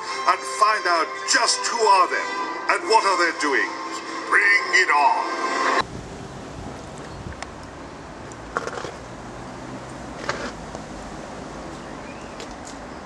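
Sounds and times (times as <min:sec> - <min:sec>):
steady background noise: 0:05.8 - 0:13.0.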